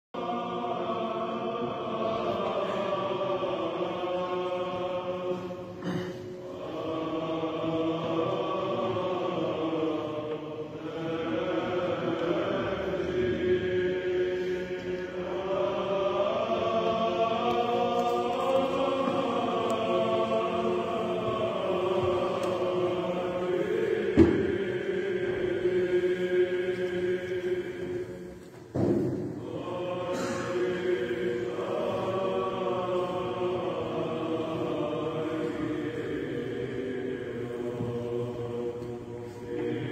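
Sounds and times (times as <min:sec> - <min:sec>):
monks chanting: 0:00.2 - 0:39.9
sharp knock: 0:28.7 - 0:29.4.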